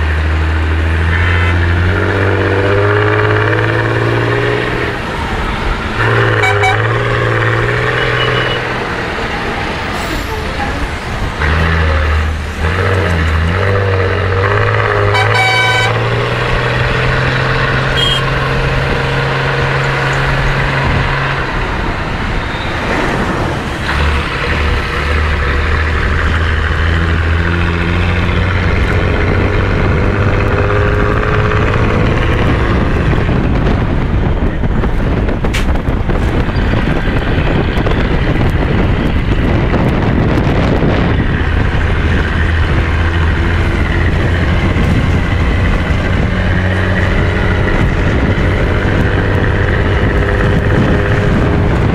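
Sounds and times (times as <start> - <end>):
vehicle engine drone and road noise: 0.0 - 51.9
vehicle horn toot: 1.1 - 1.6, 6.0 - 7.2, 7.9 - 8.7, 15.0 - 16.2, 17.9 - 18.4.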